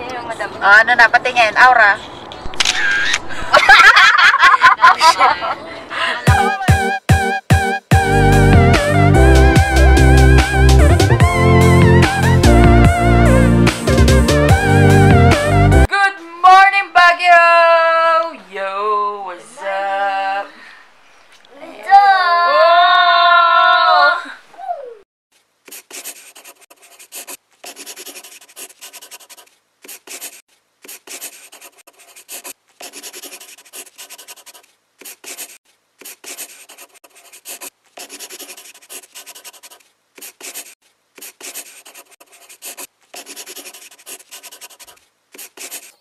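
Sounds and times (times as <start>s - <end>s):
scratchy writing: 25.7s - 46.0s.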